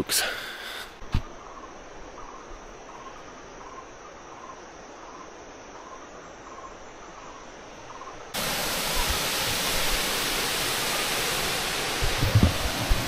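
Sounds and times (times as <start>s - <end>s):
faint insect chirping: 0.0s - 12.0s
waterfall rushing: 8.4s - 13.0s.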